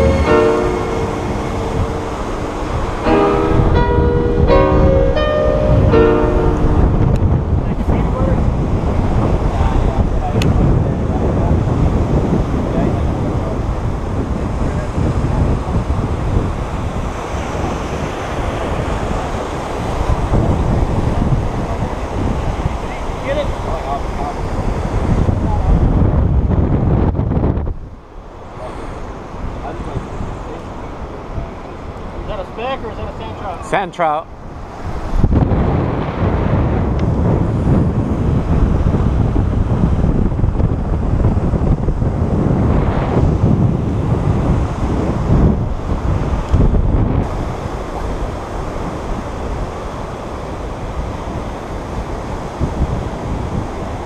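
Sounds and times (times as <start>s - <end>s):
breaking surf: 0.0s - 54.0s
wind buffeting microphone: 0.0s - 54.0s.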